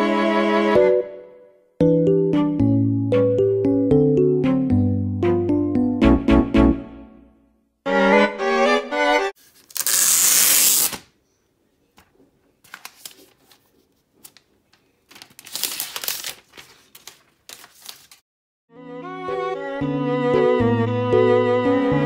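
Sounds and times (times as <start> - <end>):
background music: 0.0 - 9.4, 18.7 - 22.0
plastic film peeling: 9.5 - 11.1, 15.1 - 18.2
plastic crinkling: 12.7 - 18.2.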